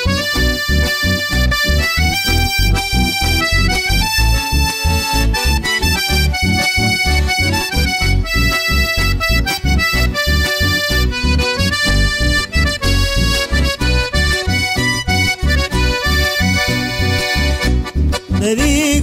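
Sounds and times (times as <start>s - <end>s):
accordion melody: 0.0s - 19.0s
pulsing bass beat: 0.0s - 19.0s.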